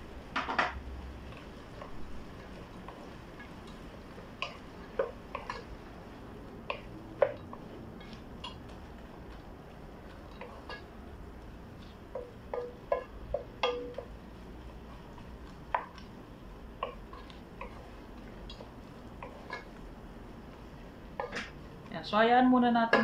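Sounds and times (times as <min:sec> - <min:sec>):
wooden spoon knocking on pot: 0:11.8 - 0:14.2, 0:15.7 - 0:16.0.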